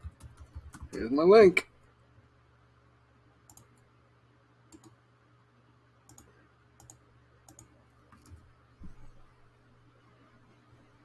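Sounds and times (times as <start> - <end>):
computer clicks: 3.4 - 3.9, 4.7 - 5.0, 6.0 - 8.4.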